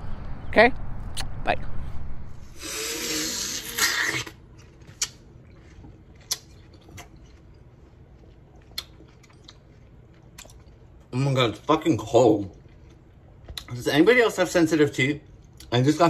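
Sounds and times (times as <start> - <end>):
wet crunch of biting watermelon: 2.6 - 7.6
quiet chewing: 3.8 - 13.8.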